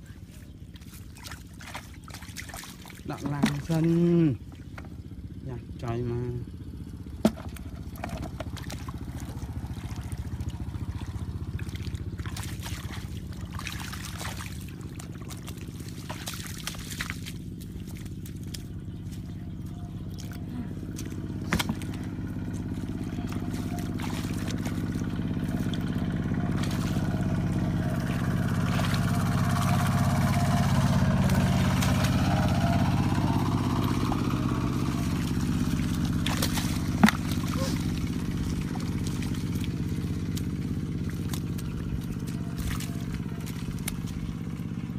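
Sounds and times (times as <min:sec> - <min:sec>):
engine humming: 0:00.0 - 0:44.9
hands splashing in muddy water: 0:00.2 - 0:04.8, 0:07.1 - 0:44.9.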